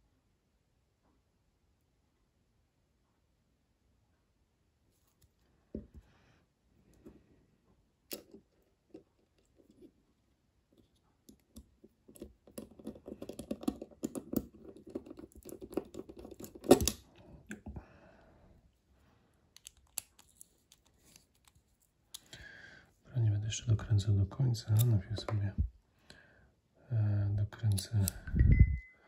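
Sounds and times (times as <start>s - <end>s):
screwdriver metal clicks and scrapes: 12.1s - 17.0s, 19.6s - 21.6s.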